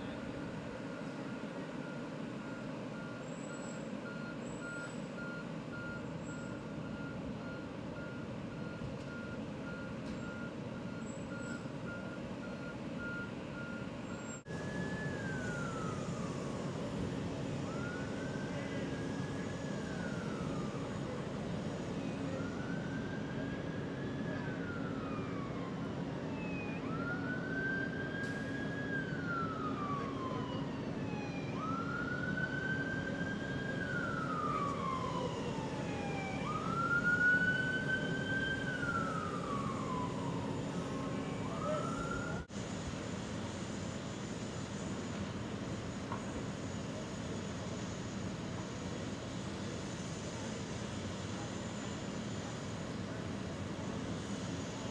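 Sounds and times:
siren wailing: 0:00.0 - 0:42.5
truck reversing alarm beeps: 0:00.0 - 0:42.5
low engine rumble: 0:00.0 - 0:54.9.

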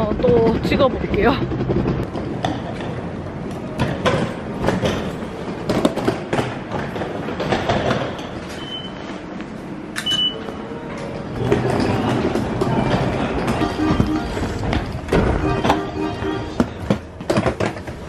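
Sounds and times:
footsteps on station floor: 0:00.0 - 0:18.0
station background noise: 0:00.0 - 0:18.0
ticket gate card reader beeping: 0:10.0 - 0:10.6, 0:13.5 - 0:14.7, 0:15.3 - 0:16.8.

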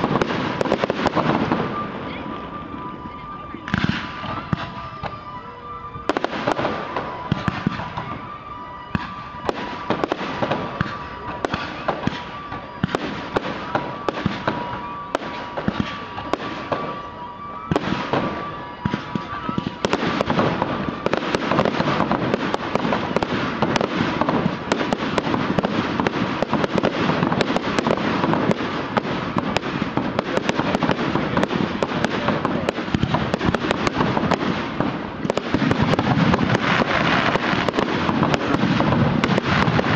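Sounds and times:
fireworks bursting with bangs: 0:00.0 - 0:39.9.

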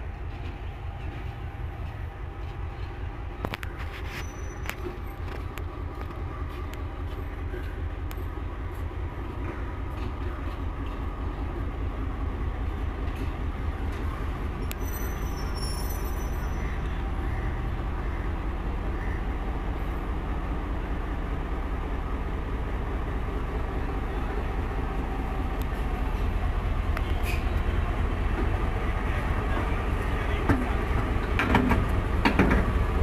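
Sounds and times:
diesel locomotive engine rumble: 0:00.0 - 0:33.0
high-pitched squeal: 0:14.7 - 0:16.6.

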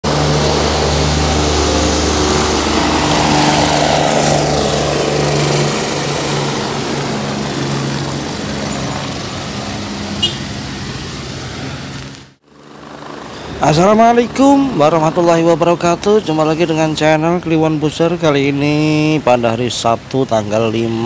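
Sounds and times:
rushing haze: 0:00.0 - 0:12.4
steady engine noise: 0:00.0 - 0:21.0.

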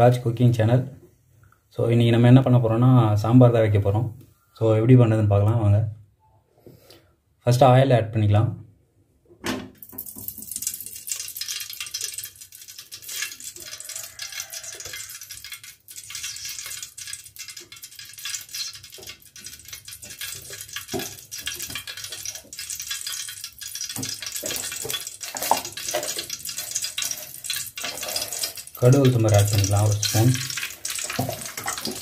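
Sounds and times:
oil sizzling in a pot: 0:09.8 - 0:32.0.

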